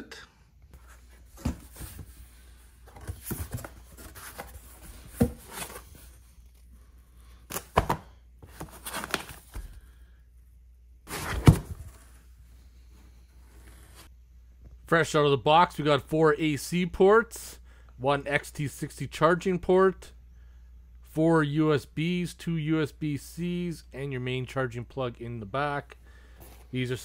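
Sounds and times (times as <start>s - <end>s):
cardboard box knocks and thuds: 11.1s - 11.9s.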